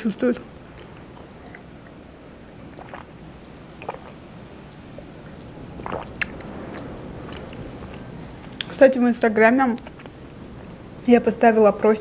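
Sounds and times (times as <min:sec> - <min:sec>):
strong wind rumble: 0:00.6 - 0:12.0
person swallowing gulps: 0:00.7 - 0:08.7.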